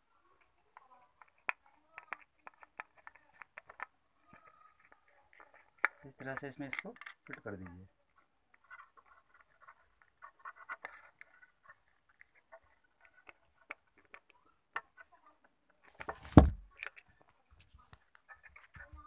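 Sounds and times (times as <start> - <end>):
plastic clicks and scratches: 0.2 - 19.0
phone dropping thud: 16.2 - 16.6.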